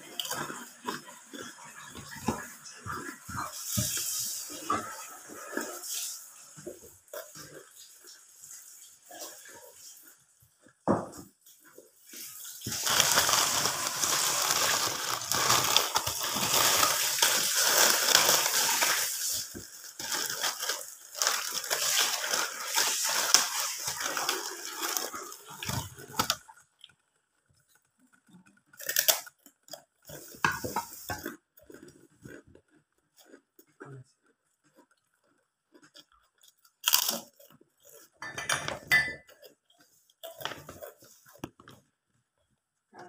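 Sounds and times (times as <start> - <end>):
plastic bag crinkling: 12.4 - 27.9.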